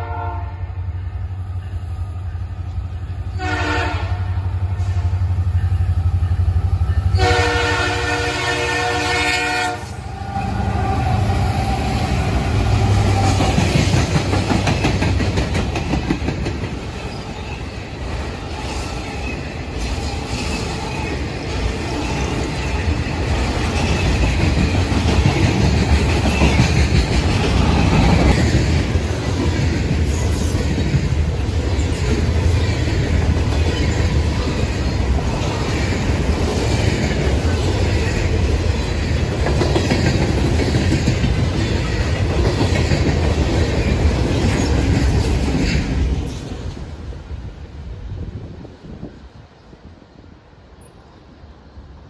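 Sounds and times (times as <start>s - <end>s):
locomotive horn blasts: 0.0s - 0.8s, 3.4s - 5.2s, 7.1s - 11.4s
train rumbling past: 0.0s - 52.0s.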